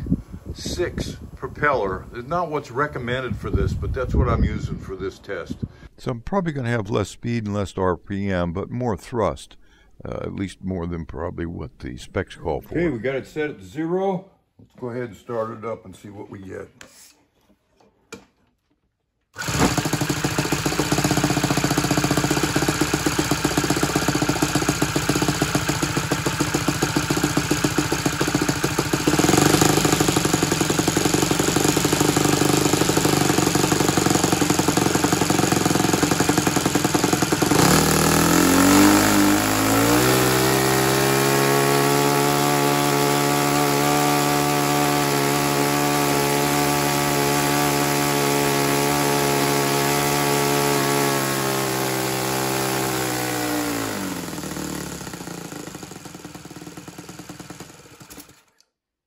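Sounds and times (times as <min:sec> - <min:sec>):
model airplane engine running: 0:19.4 - 0:58.4.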